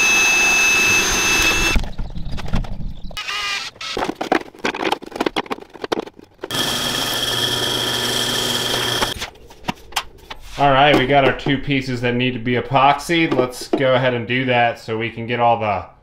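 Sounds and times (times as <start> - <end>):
drill press drilling plastic: 0.0 - 1.8, 6.5 - 9.2
hand drill boring plastic: 0.0 - 1.8, 3.2 - 4.1, 6.4 - 9.2.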